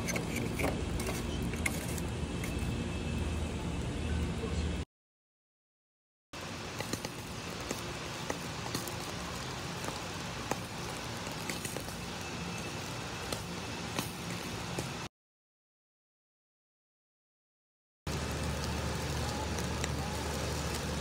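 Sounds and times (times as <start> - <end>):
charcoal fire crackling and popping: 0.0 - 2.8, 6.4 - 15.1, 18.1 - 21.0.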